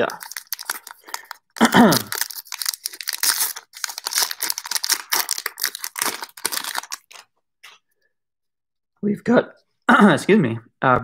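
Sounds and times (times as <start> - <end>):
wrapper tearing and crinkling: 0.0 - 7.3.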